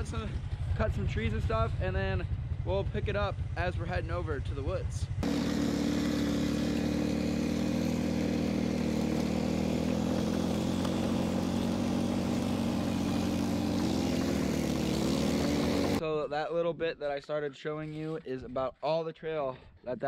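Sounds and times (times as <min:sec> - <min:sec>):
atv engine running: 0:05.1 - 0:16.0.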